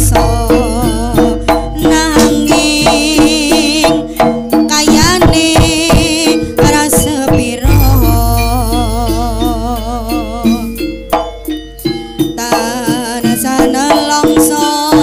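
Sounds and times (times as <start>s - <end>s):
wavering high melody: 0.0s - 2.9s, 7.6s - 12.4s
hand drums driving rhythm: 0.0s - 15.0s
ringing gong-chime tones: 7.6s - 12.2s.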